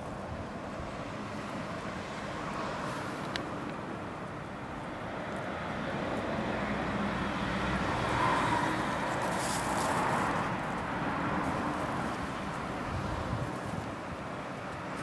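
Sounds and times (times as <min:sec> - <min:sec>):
outdoor rumble and hiss: 0:00.0 - 0:15.0.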